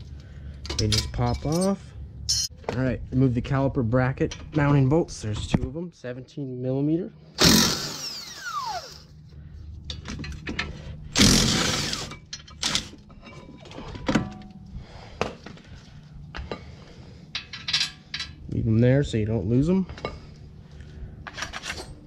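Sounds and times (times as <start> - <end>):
impact wrench whine: 7.4 - 9.2, 11.1 - 13.0.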